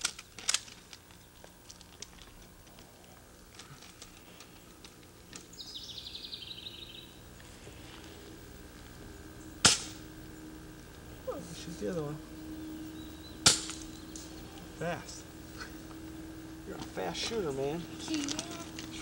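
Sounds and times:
bird trill: 5.5s - 7.2s, 12.3s - 14.8s
bb gun firing crack: 9.6s - 10.0s, 13.4s - 13.8s.

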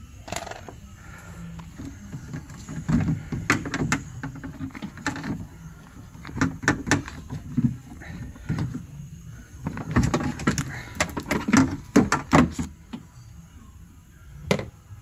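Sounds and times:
plastic parts rattling in metal door: 1.6s - 8.8s, 9.6s - 12.7s.

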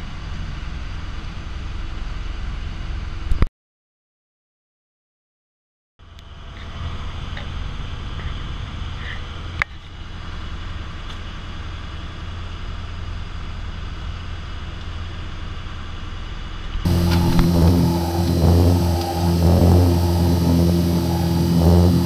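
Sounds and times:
boat engine humming: 16.9s - 22.0s.

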